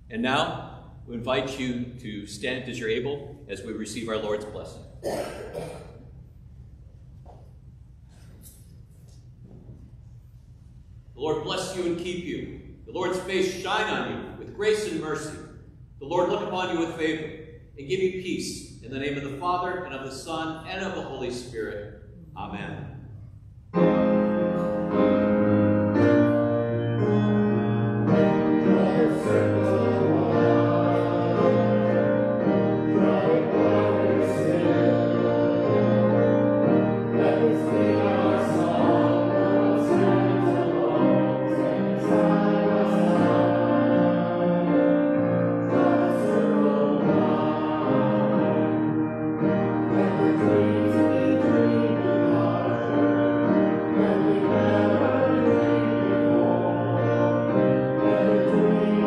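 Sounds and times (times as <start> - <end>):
keyboard accompaniment: 23.7 - 59.0
voices singing a hymn: 23.8 - 59.0.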